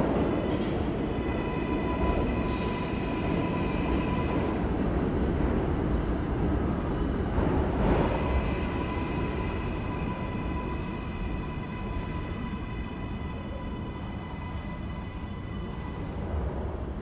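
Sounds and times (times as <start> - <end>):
subway train rumbling on rails: 0.0 - 17.0.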